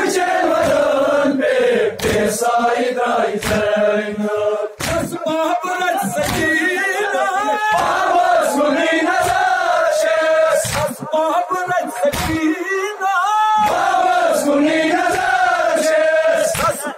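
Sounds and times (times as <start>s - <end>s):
men chanting a lament: 0.0s - 16.9s
hands slapping chests: 0.5s - 1.0s, 1.9s - 2.5s, 3.3s - 3.8s, 4.8s - 5.2s, 6.1s - 6.6s, 7.7s - 8.1s, 10.6s - 11.0s, 12.0s - 12.5s, 13.6s - 14.1s, 16.4s - 16.9s.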